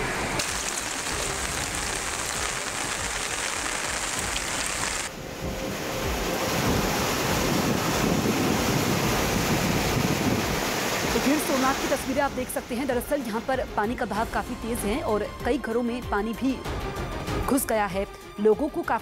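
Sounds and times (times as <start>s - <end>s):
floodwater rushing: 0.0s - 13.6s
wind buffeting microphone: 5.2s - 11.3s.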